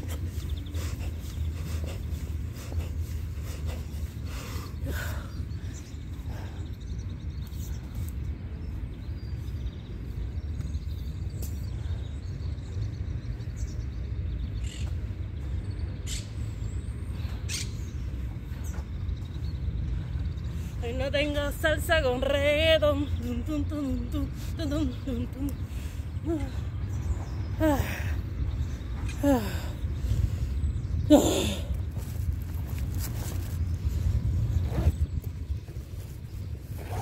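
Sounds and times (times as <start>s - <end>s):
wind rumble on microphone: 0.0s - 37.0s.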